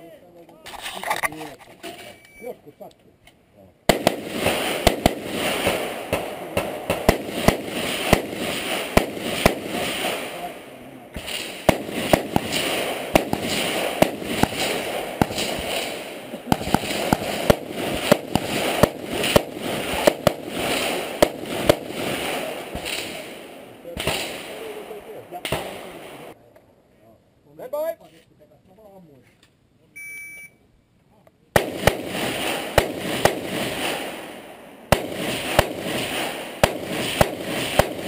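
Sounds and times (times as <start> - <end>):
rifle shots: 3.9 - 26.4, 31.6 - 38.0.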